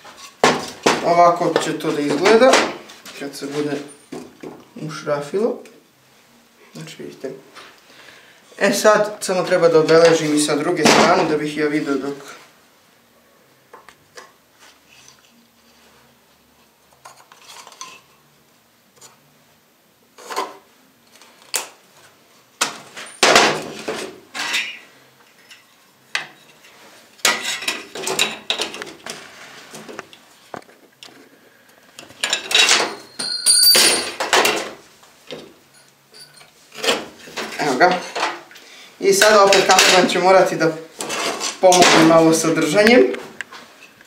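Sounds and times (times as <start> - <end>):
tools clattering on workbench: 22.7 - 29.2, 32.0 - 38.5, 39.2 - 40.2, 41.0 - 42.2
metallic ring: 33.0 - 34.2, 35.7 - 36.5.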